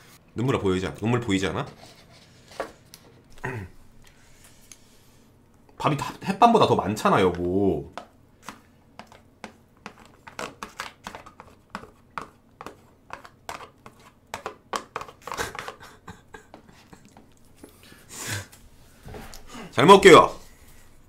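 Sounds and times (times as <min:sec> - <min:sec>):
wooden spoon scraping plastic tray: 0:01.6 - 0:02.8, 0:08.4 - 0:15.8.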